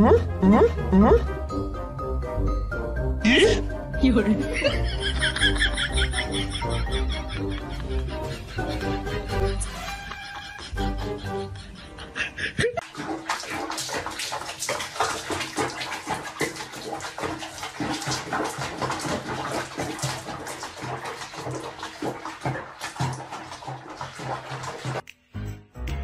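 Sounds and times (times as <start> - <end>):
water splashing in plastic tub: 4.1 - 7.1, 12.8 - 25.0.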